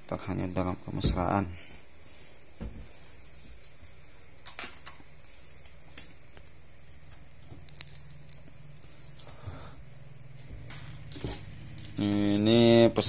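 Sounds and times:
steady low hum: 5.0s - 13.0s.

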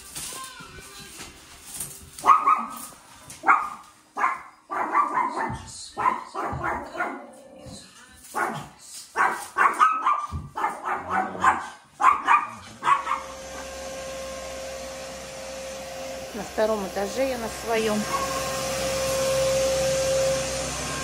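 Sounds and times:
dog barking: 2.2s - 7.4s, 8.3s - 13.4s, 18.1s - 18.4s
steady machine hum: 13.0s - 21.0s.

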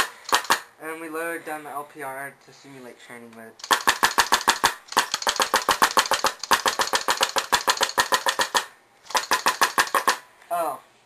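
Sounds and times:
paintball marker rapid shots: 0.0s - 0.7s, 3.6s - 10.2s.

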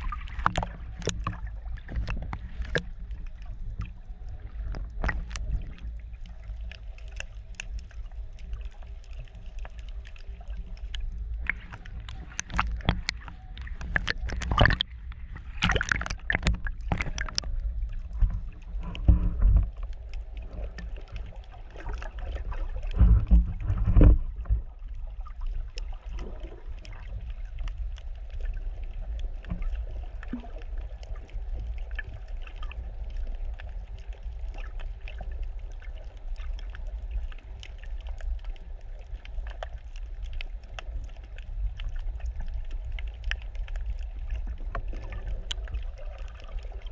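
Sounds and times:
splashes and knocks: 0.0s - 5.9s, 10.8s - 19.9s, 20.6s - 24.7s
faint crackles: 0.0s - 46.9s
underwater rumble of water: 0.0s - 46.9s.

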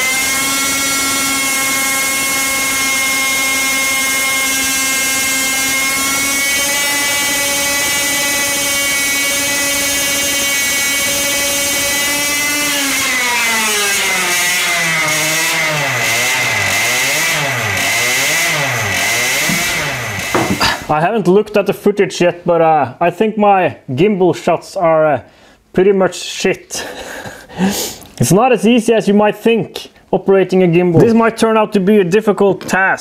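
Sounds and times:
two-stroke engine revving: 0.0s - 20.8s.

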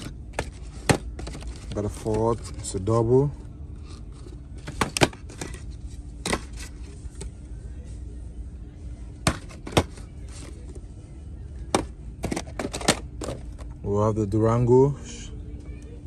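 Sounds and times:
plastic boxes clicking and knocking: 0.0s - 2.5s, 4.6s - 5.6s, 9.2s - 10.6s, 11.7s - 13.7s
steady low hum: 0.0s - 16.0s.

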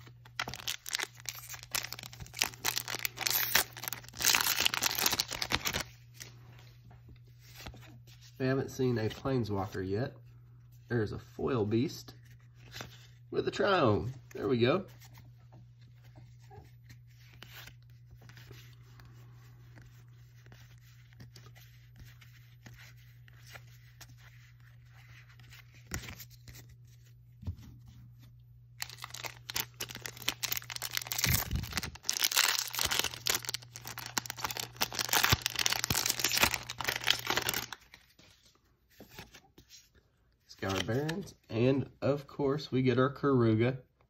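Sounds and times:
low steady hum: 0.0s - 44.0s
foil wrapper tearing and crinkling: 0.3s - 5.9s, 28.8s - 37.9s.

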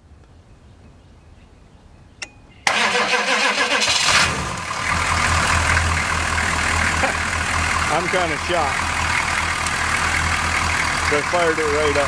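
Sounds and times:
diesel engine starter cranking: 2.6s - 12.0s
diesel engine idling: 2.7s - 12.0s.

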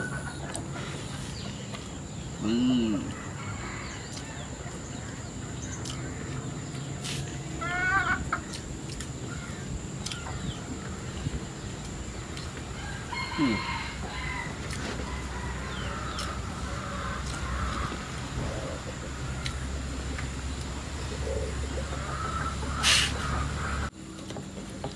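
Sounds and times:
chickens clucking: 0.0s - 24.9s
rooster crowing: 2.8s - 4.6s, 12.7s - 18.0s.

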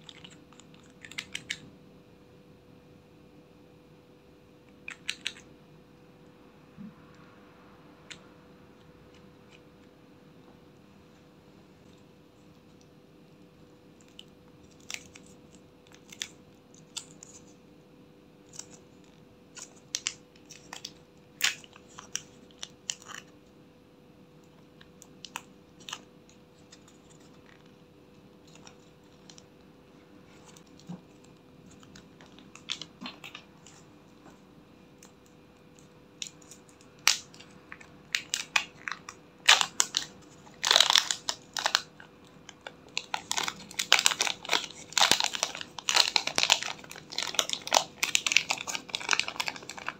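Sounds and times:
plastic bag crackling: 38.1s - 49.9s.

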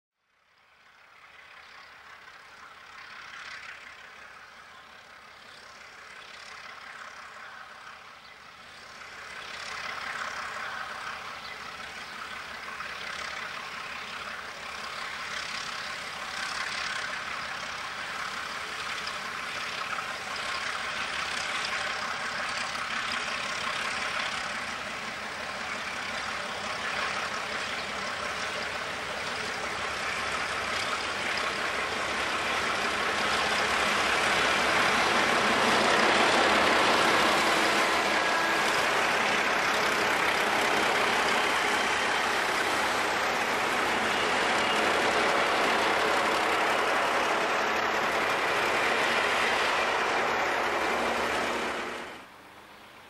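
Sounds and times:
diesel locomotives passing: 0.3s - 53.0s.

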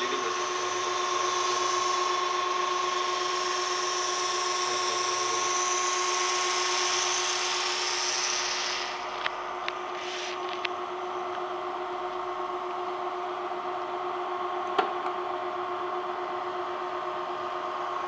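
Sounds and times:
small machine whining: 0.0s - 18.0s
hiss: 0.2s - 9.3s, 9.9s - 10.4s.

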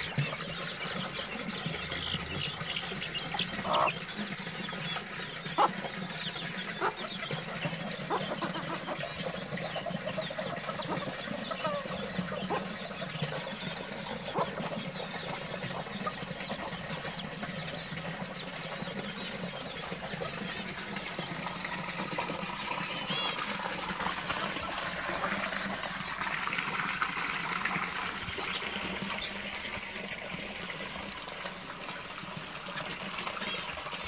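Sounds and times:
chickens clucking: 0.0s - 34.0s
small birds chirping: 0.0s - 34.0s.

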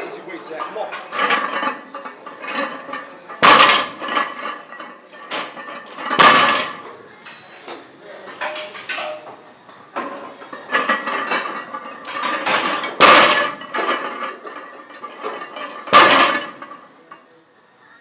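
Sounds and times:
weight plates clanking: 0.1s - 7.4s, 8.3s - 17.1s
barbell crashing on floor: 3.4s - 4.6s, 5.3s - 6.8s, 10.8s - 16.7s.

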